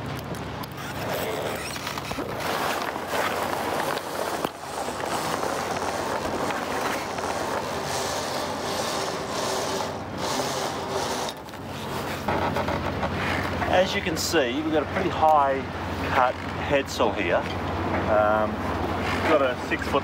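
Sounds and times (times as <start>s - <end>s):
sail cloth flapping in breeze: 1.8s - 13.6s.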